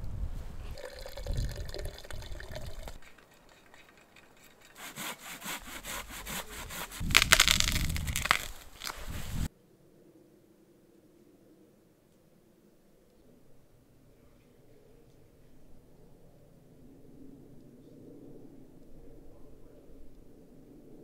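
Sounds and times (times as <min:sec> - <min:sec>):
hand saw cutting through log: 0:04.3 - 0:08.7.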